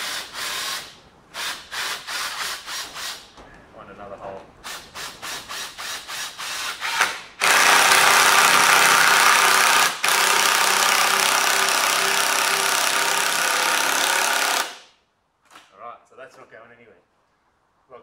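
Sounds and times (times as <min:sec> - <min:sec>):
power drill driving a screw: 0:00.0 - 0:03.2, 0:04.7 - 0:14.9.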